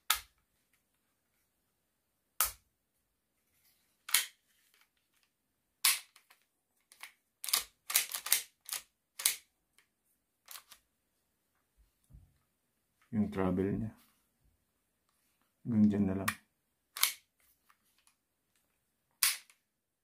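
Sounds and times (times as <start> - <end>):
pistol slide clicks and clacks: 7.0 - 9.4, 17.0 - 17.2.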